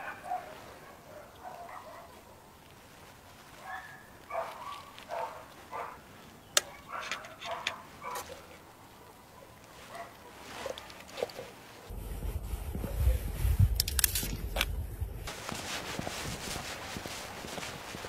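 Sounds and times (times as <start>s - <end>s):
dog barking: 0.0s - 2.5s, 3.5s - 11.0s.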